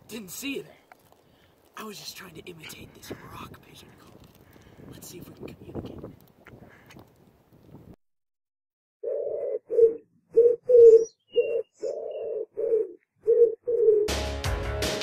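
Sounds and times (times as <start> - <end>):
pigeon cooing: 9.0 - 14.1
music: 14.1 - 15.0.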